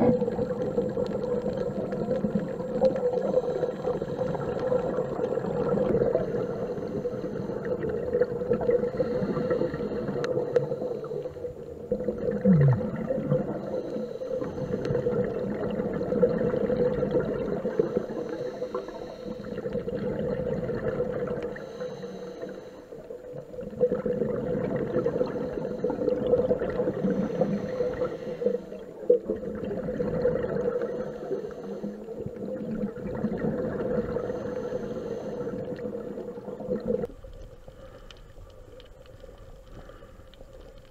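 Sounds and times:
diver breathing through regulator: 0:06.0 - 0:07.8, 0:08.6 - 0:11.7, 0:13.4 - 0:15.4, 0:17.6 - 0:20.0, 0:21.4 - 0:23.1, 0:25.0 - 0:29.0, 0:30.5 - 0:32.4, 0:33.9 - 0:36.4.

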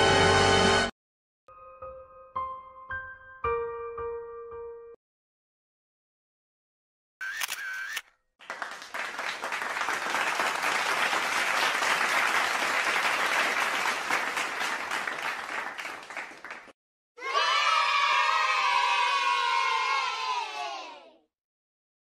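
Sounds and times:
crowd applause: 0:08.4 - 0:16.8
people shouting and cheering: 0:17.2 - 0:21.2.

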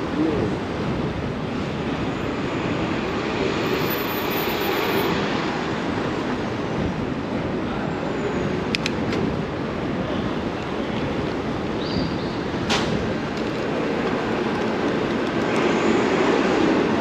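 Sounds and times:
wind on microphone: 0:00.0 - 0:04.0, 0:05.1 - 0:17.0
road and traffic noise: 0:00.0 - 0:17.0.

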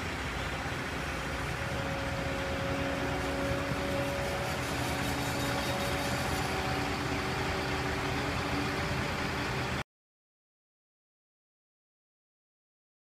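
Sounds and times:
diesel engine running: 0:00.0 - 0:09.8
steady held tones: 0:01.2 - 0:09.8.

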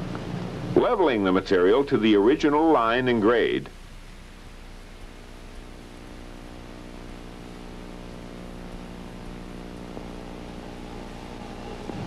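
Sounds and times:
diesel engine running steadily: 0:03.7 - 0:12.0.

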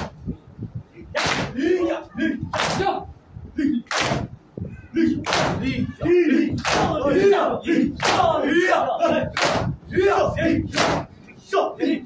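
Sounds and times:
hands slapping chests: 0:01.2 - 0:01.6, 0:02.5 - 0:02.9, 0:03.9 - 0:04.3, 0:05.2 - 0:05.6, 0:06.6 - 0:07.0, 0:09.3 - 0:09.7, 0:10.7 - 0:11.1
crowd shouting: 0:04.8 - 0:12.0.

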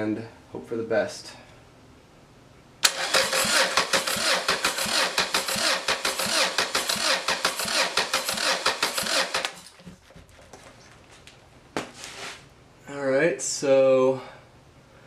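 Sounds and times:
starter motor cranking engine: 0:02.8 - 0:09.8.

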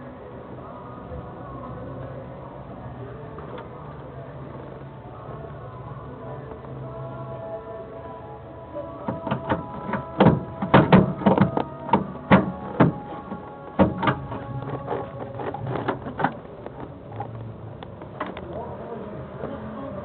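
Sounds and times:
sharp clicks and knocks: 0:09.1 - 0:18.6.

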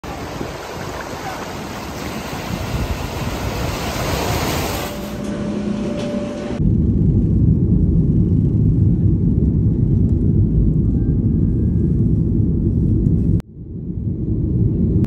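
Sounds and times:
waves breaking on a beach: 0:00.0 - 0:05.0
airliner hum: 0:00.0 - 0:15.0
loud low rumble: 0:01.8 - 0:15.0.

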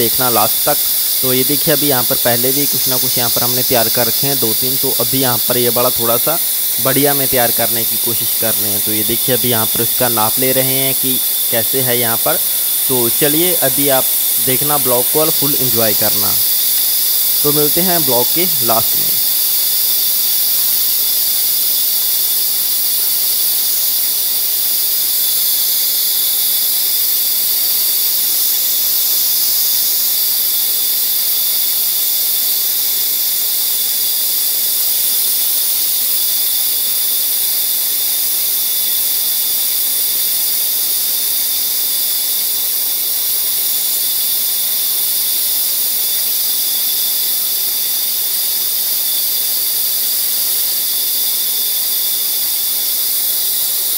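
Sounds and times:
band saw cutting wood: 0:00.0 - 0:19.3.

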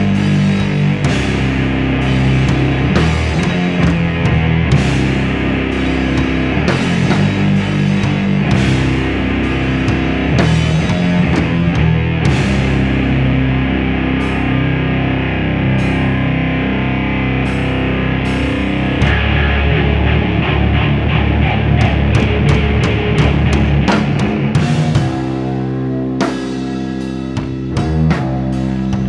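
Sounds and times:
drum kit with cymbal crashes: 0:00.0 - 0:13.4, 0:21.2 - 0:29.0
distorted electric guitars: 0:00.0 - 0:29.0.

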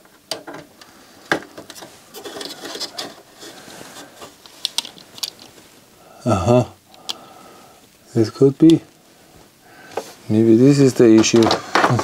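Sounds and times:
cd player parts clicking: 0:00.0 - 0:03.3
rubbing and scraping: 0:01.6 - 0:05.8.

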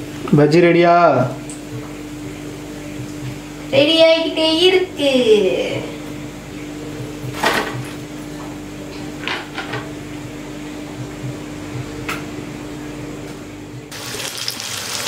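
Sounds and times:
steady low hum: 0:00.0 - 0:14.0
food sizzling in hot oil: 0:13.9 - 0:15.0.

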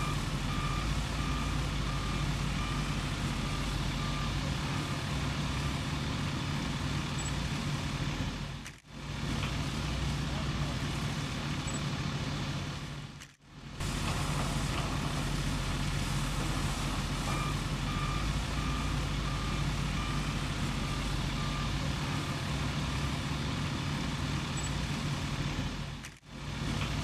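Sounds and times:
reversing alarm beeping: 0:00.0 - 0:05.8, 0:11.7 - 0:11.9, 0:16.4 - 0:23.3
engine running: 0:00.0 - 0:27.0.

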